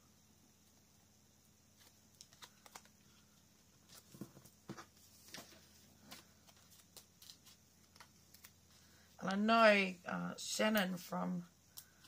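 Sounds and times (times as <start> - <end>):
paper handling: 1.8 - 3.2, 3.9 - 8.9.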